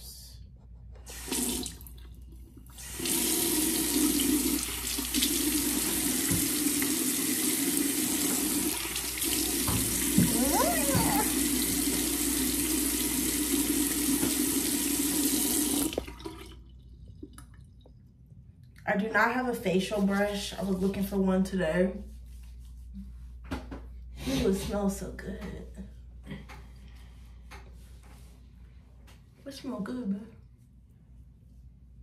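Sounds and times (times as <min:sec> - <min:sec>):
faucet running into sink: 0:01.1 - 0:18.0.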